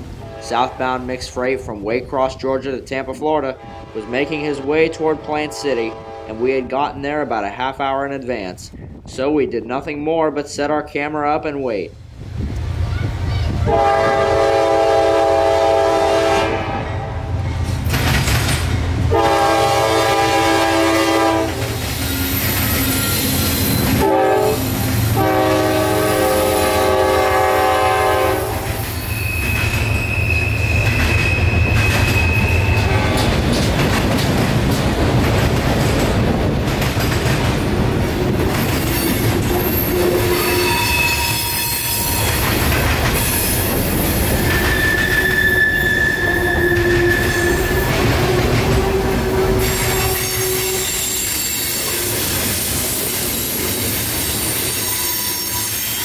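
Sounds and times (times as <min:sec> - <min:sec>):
train horn blasts: 0:00.1 - 0:01.0, 0:03.5 - 0:06.5, 0:13.7 - 0:17.4, 0:19.1 - 0:21.8, 0:22.8 - 0:29.4, 0:39.6 - 0:42.3, 0:44.5 - 0:51.2
high wheel squeal: 0:22.0 - 0:24.0, 0:28.8 - 0:33.2, 0:38.9 - 0:42.4, 0:43.2 - 0:56.0
wheel and rail clatter: 0:28.9 - 0:39.9, 0:41.2 - 0:45.3.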